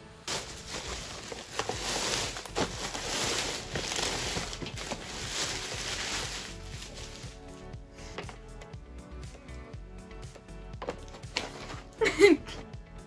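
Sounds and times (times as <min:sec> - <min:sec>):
packaging rustling and crinkling: 0:00.3 - 0:07.5.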